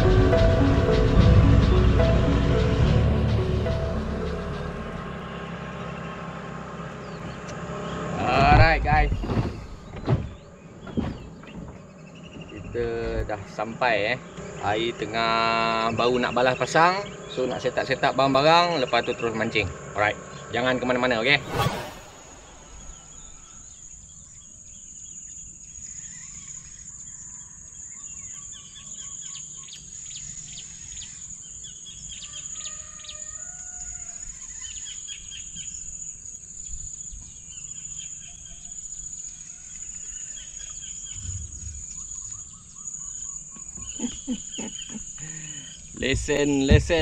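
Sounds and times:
birds chirping and whistling: 0:20.3 - 0:26.8, 0:34.4 - 0:47.0.

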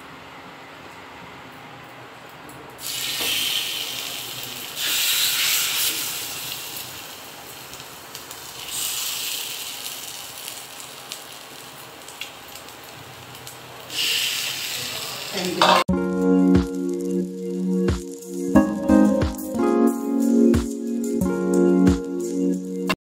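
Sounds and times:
battered flowers sizzling in oil: 0:02.8 - 0:19.1.

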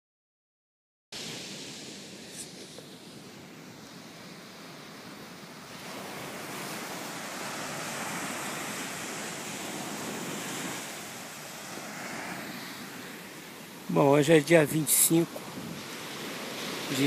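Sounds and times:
small waves breaking on sand: 0:01.2 - 0:17.0.

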